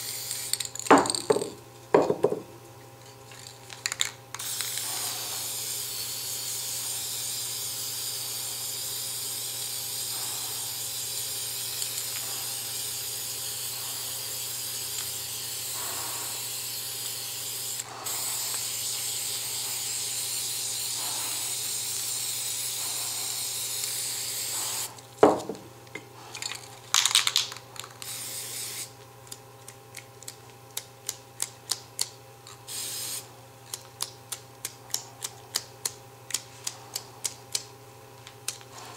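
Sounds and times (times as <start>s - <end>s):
aerosol spray can hissing: 0.0s - 1.4s, 4.4s - 25.4s, 28.0s - 28.9s, 32.7s - 33.3s
spray can ball rattling: 0.0s - 2.2s, 3.3s - 17.3s, 26.4s - 28.8s, 32.7s - 33.2s
knock: 0.9s - 2.5s.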